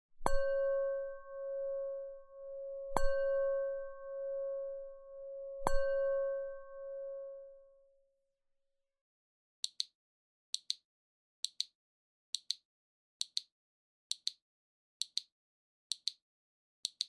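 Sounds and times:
bell-like chime: 0.3s - 7.8s.

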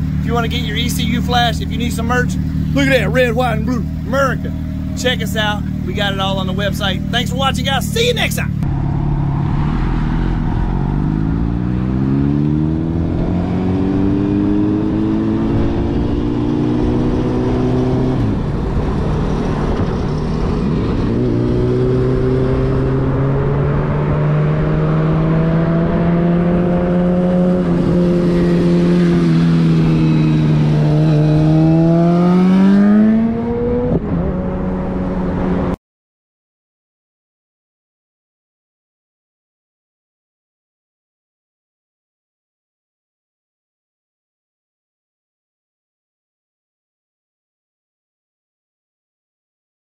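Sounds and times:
road noise: 0.0s - 35.8s
vehicle engine accelerating: 0.0s - 35.8s.

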